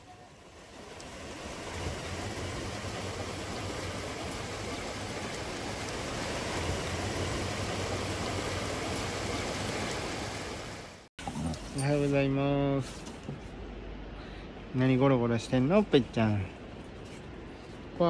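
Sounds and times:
river water rushing: 0.4 - 11.1.

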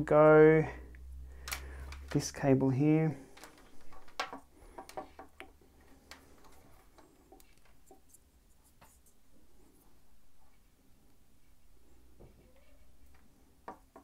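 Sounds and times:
small plastic parts clicking: 1.4 - 2.3, 3.3 - 8.0.

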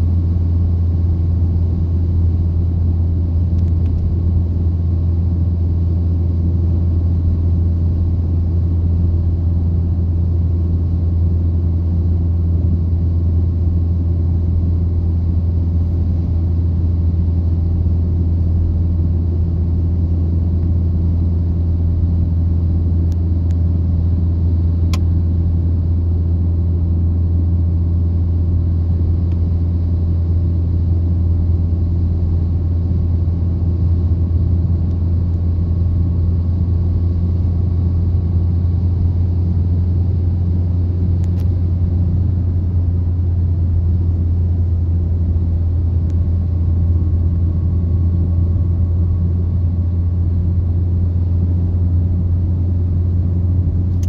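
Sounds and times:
car engine and tyres droning: 0.0 - 54.0.

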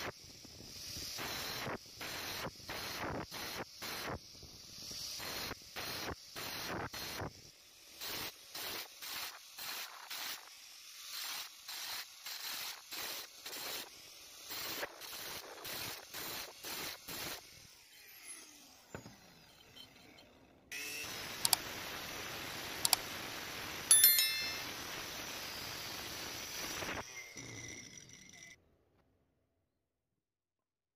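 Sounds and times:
metallic ring: 23.9 - 25.0.

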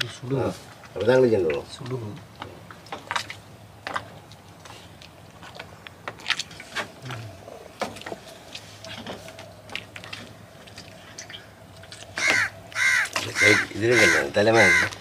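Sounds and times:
crow cawing: 12.2 - 15.0.

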